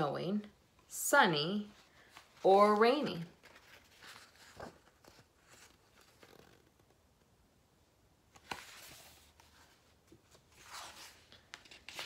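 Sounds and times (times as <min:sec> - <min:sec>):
paper page rustling: 0:01.7 - 0:07.0, 0:08.3 - 0:12.0.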